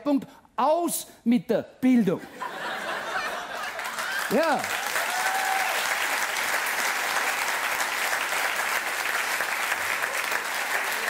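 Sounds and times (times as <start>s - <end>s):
audience clapping: 3.4s - 11.0s.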